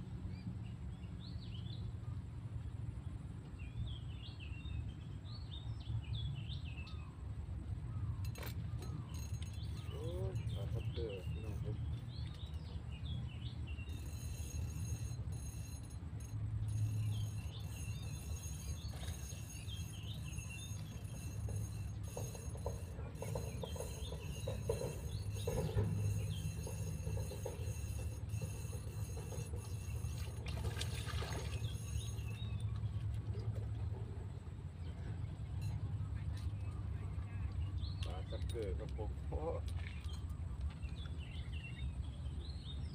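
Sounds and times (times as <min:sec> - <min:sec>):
small birds chirping: 0:08.0 - 0:15.0, 0:16.8 - 0:33.1
fishing reel clicking: 0:13.9 - 0:30.6, 0:31.5 - 0:32.7.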